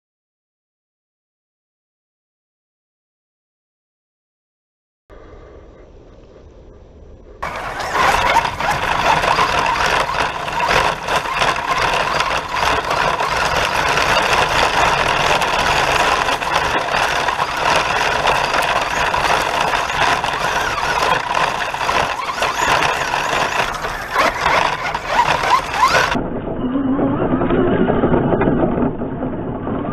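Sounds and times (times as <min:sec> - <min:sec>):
high drivetrain whine: 0:07.4 - 0:26.2
tyres rushing over dirt: 0:07.4 - 0:26.2.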